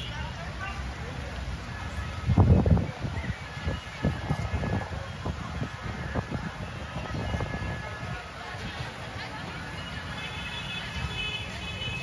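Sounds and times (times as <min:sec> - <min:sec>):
city street ambience: 0:00.0 - 0:12.0
wind buffeting microphone: 0:02.0 - 0:09.2.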